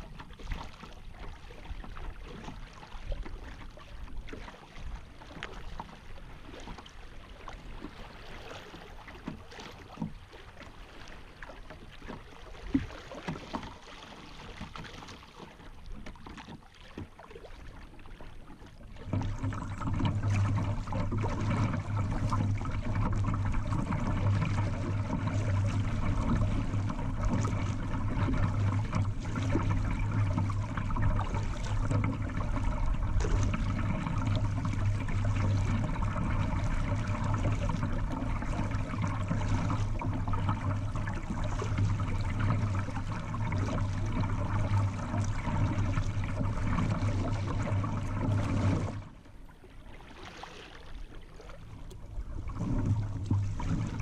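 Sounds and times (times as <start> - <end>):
light splashes and drips: 0.0 - 54.0
rushing water: 0.0 - 54.0
constant low hum: 18.6 - 50.1, 51.0 - 54.0.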